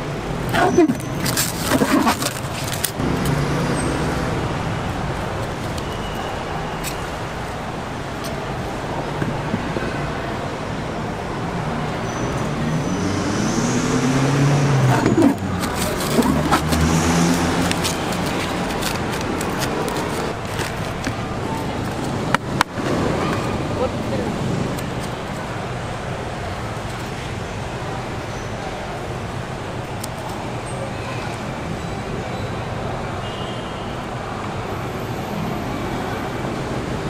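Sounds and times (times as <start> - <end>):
road traffic rumble: 0.0 - 37.0
plastic bag crinkling: 1.2 - 3.0, 15.2 - 22.2
vehicle engine rising in pitch: 12.4 - 18.3.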